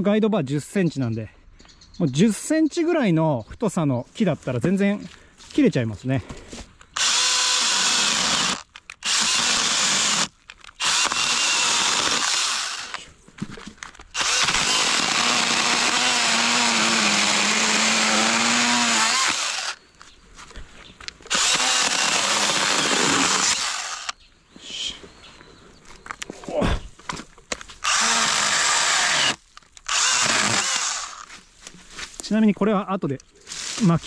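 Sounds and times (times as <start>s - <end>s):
chainsaw cutting a log: 7.0s - 13.0s, 14.1s - 19.8s, 21.3s - 24.2s, 27.8s - 31.3s.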